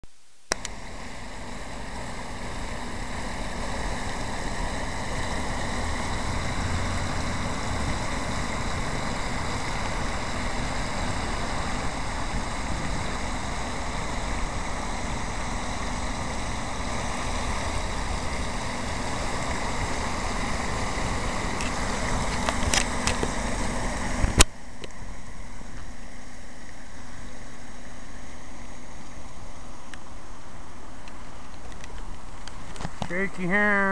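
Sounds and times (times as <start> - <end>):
fountain water splashing: 0.6 - 26.2.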